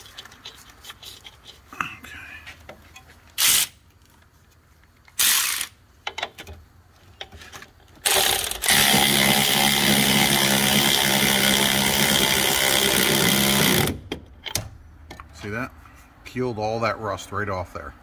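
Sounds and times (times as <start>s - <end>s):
cordless power tool motor: 8.0s - 14.0s.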